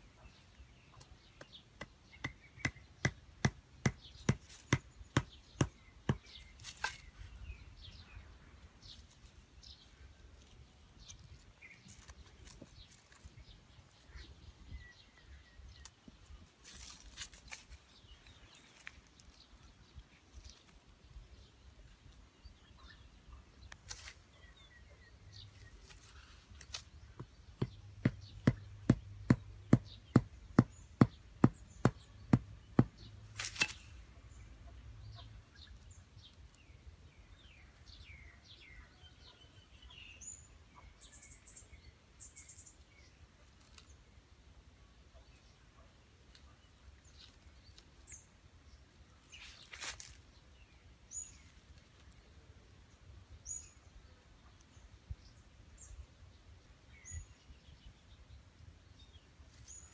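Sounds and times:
wooden stakes pounded into ground: 0.9s - 7.2s, 25.8s - 34.0s
rustling in dry leaves: 6.2s - 22.2s, 23.7s - 24.6s, 25.4s - 27.2s, 33.2s - 34.1s, 42.7s - 44.7s, 46.3s - 53.3s
faint bird chirps: 37.2s - 44.0s.

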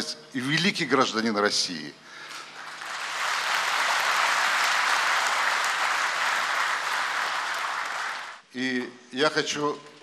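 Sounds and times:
audience applauding: 2.5s - 8.4s.

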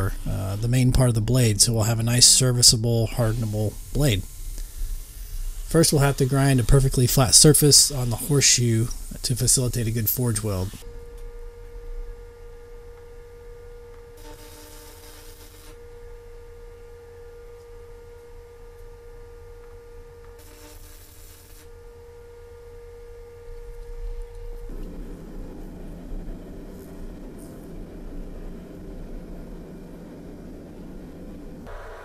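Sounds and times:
gas forge rushing: 0.0s - 10.8s, 24.1s - 32.0s
steady hum: 0.0s - 32.0s
welding arc crackle: 2.3s - 10.8s, 14.2s - 15.8s, 20.4s - 21.7s, 24.4s - 32.0s.

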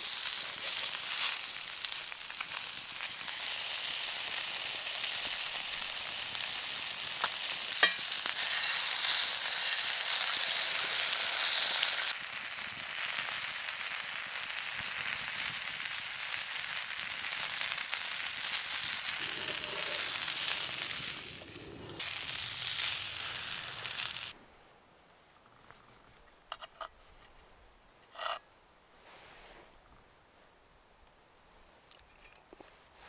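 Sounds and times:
food sizzling in skillet: 0.0s - 24.4s.

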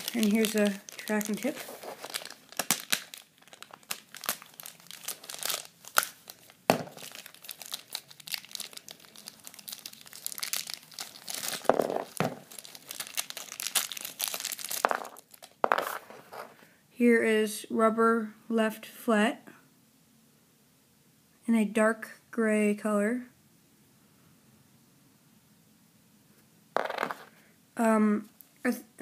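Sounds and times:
plastic bags crinkling and tearing: 0.0s - 15.6s.

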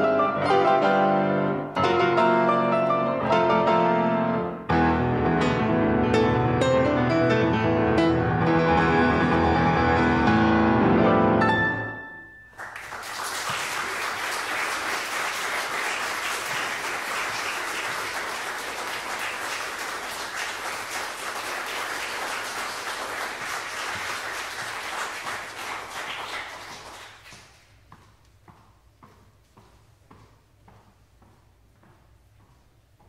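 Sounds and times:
piano chord: 0.0s - 12.5s
audience applauding: 12.5s - 27.6s.

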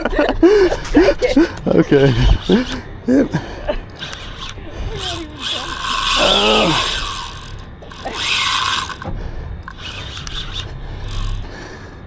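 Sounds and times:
fishing reel ratcheting whir: 1.6s - 2.9s, 3.8s - 11.8s.

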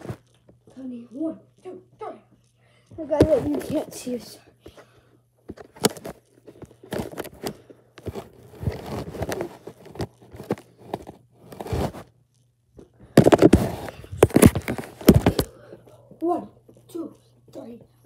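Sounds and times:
rustling: 5.8s - 12.1s.

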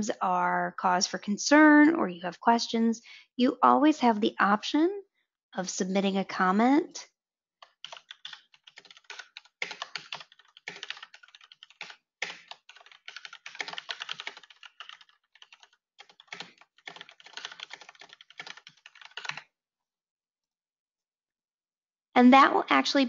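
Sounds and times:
computer keyboard typing: 7.6s - 19.5s.

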